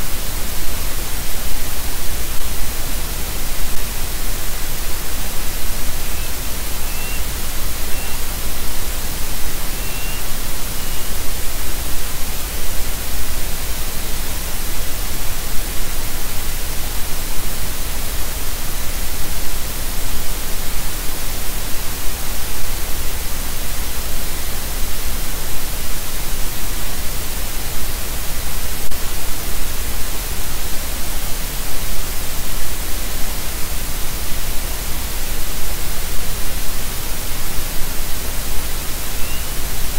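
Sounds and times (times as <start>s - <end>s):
static hiss: 0.0s - 39.9s
faint high chirps: 6.0s - 8.3s, 9.7s - 11.3s, 39.1s - 39.6s.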